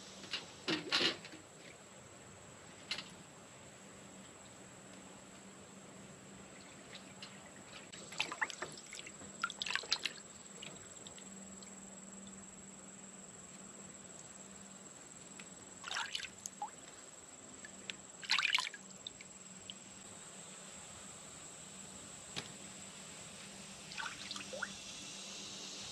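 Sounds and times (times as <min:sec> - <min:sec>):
water splashing in a metal tub: 0:06.6 - 0:11.2, 0:15.8 - 0:16.9, 0:18.2 - 0:19.2, 0:23.8 - 0:24.7.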